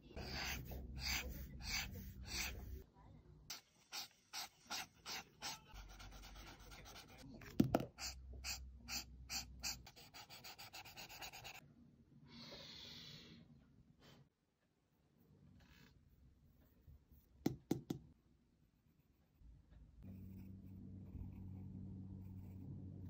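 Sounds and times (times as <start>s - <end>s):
marker scratching on paper: 0.0s - 2.8s, 3.5s - 7.2s, 7.8s - 11.6s.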